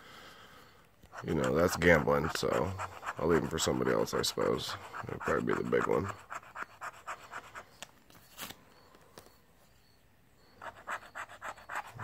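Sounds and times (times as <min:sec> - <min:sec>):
pen scratching lottery ticket: 0:01.1 - 0:07.7, 0:10.6 - 0:12.0.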